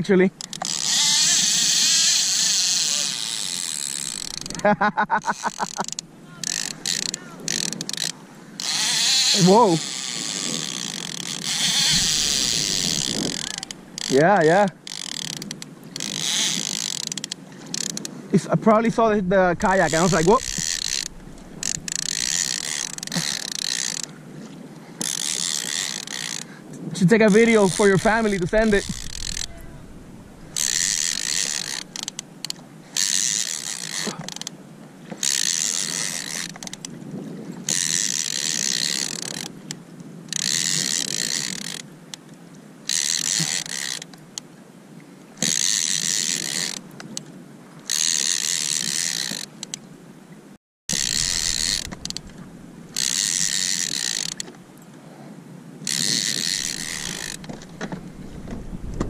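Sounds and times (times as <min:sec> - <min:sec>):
fishing reel whirring: 0:00.4 - 0:14.2, 0:14.8 - 0:18.1, 0:19.6 - 0:24.2, 0:25.0 - 0:26.6, 0:27.3 - 0:34.5, 0:35.1 - 0:36.9, 0:37.6 - 0:41.9, 0:42.8 - 0:44.2, 0:45.4 - 0:46.8, 0:47.9 - 0:49.8, 0:50.9 - 0:54.5, 0:55.8 - 0:57.8.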